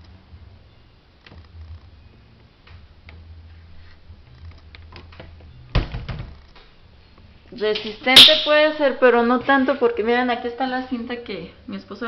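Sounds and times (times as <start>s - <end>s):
cabinet door knock and clatter: 5.7s - 6.4s.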